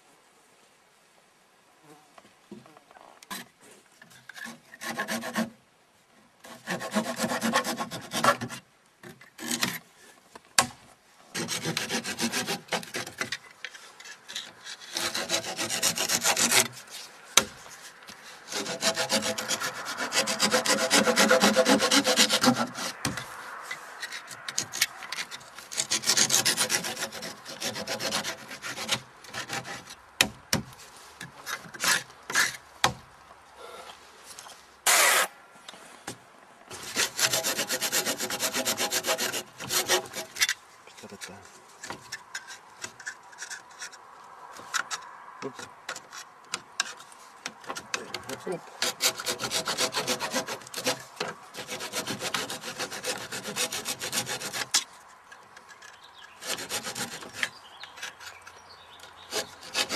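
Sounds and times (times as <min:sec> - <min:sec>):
tool rasping on wood: 0:04.4 - 0:05.5, 0:06.4 - 0:08.6, 0:11.3 - 0:13.4, 0:14.1 - 0:17.6, 0:18.4 - 0:23.3, 0:24.0 - 0:30.0, 0:36.7 - 0:40.5, 0:47.8 - 0:54.9, 0:56.3 - 0:58.5, 0:59.2 - 0:59.9.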